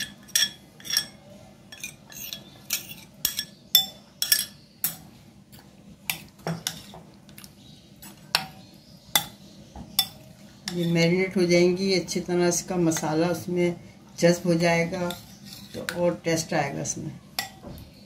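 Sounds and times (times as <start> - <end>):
metal spoon clinking on glass bowl: 0.0 - 5.0.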